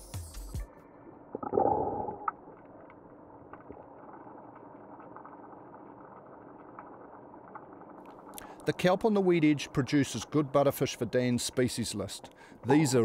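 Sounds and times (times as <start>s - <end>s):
underwater gurgling rush: 1.4s - 8.3s
faint steady hiss: 2.0s - 13.0s.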